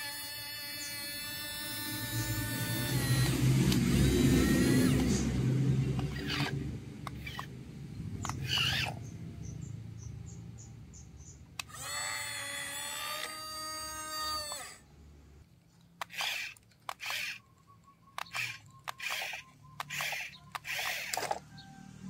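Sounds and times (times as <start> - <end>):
small electric motor whirring: 0.0 - 9.1, 11.6 - 14.8, 16.0 - 17.5, 18.2 - 21.8
short noisy bursts: 16.0 - 17.4, 18.2 - 21.4.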